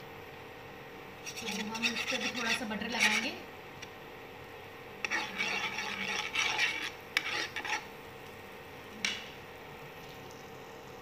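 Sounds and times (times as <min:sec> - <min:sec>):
steady hum: 0:00.0 - 0:11.0
utensil scraping griddle pan: 0:01.2 - 0:03.4, 0:05.0 - 0:07.9.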